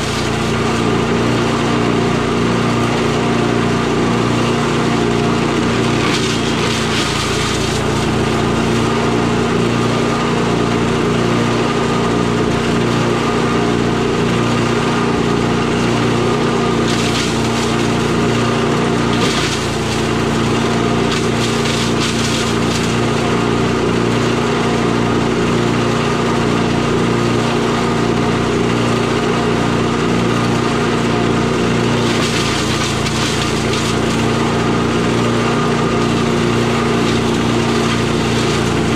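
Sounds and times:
chipper shredder engine running: 0.0s - 38.9s
sticks being shredded: 5.5s - 8.2s, 16.4s - 23.0s, 31.9s - 34.5s, 35.2s - 38.9s.

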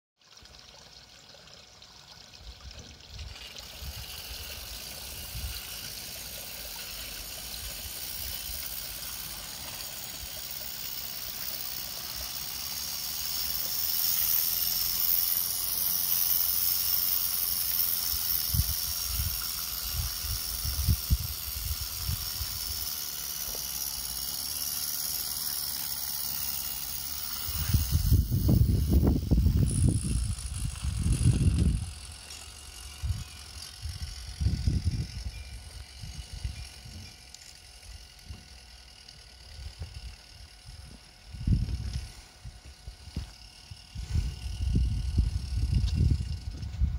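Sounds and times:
hiss of escaping steam: 3.6s - 29.6s.

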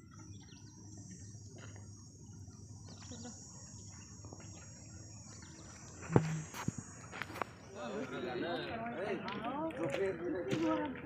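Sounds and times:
high-pitched insect drone: 0.0s - 8.6s.

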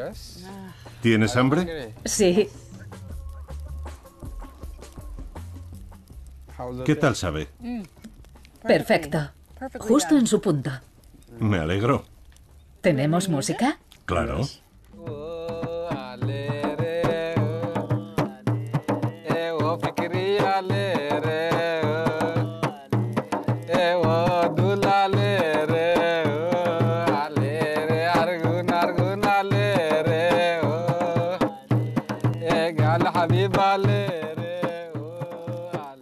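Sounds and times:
hand drum beat: 0.0s - 11.1s, 14.9s - 36.0s
person singing ornamented melody: 15.0s - 36.0s.

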